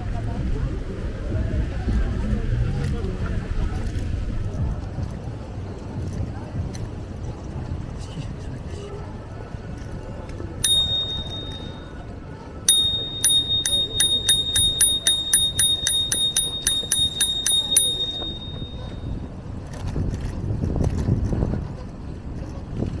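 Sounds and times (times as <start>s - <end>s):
bicycle bell ringing: 10.6s - 12.0s, 12.7s - 19.1s.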